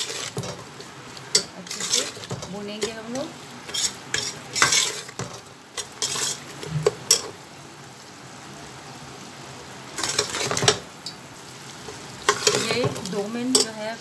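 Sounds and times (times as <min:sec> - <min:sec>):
metal spoon scraping cooking pot: 0:00.0 - 0:00.7, 0:01.3 - 0:03.0, 0:03.7 - 0:05.2, 0:05.8 - 0:07.3, 0:10.0 - 0:10.8, 0:12.3 - 0:13.8
low steady sizzle: 0:00.0 - 0:14.0.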